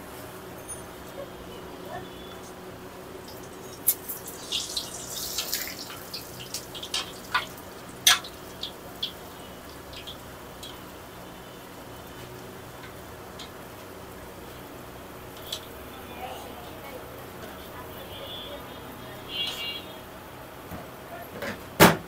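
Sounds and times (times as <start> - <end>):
dough deep-frying in oil: 0.0 - 21.8
oil crackles and pops: 3.2 - 13.7.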